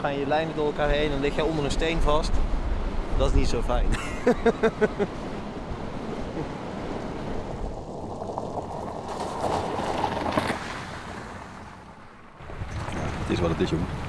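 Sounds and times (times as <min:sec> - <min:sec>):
wind: 0:00.0 - 0:14.0
rushing water: 0:04.2 - 0:14.0
tyres splashing through water: 0:06.6 - 0:14.0.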